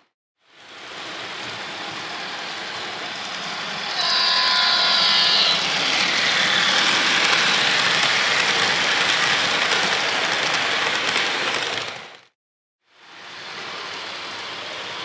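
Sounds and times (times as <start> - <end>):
train rolling on track: 0.4 - 15.0
model train horn: 3.9 - 5.6.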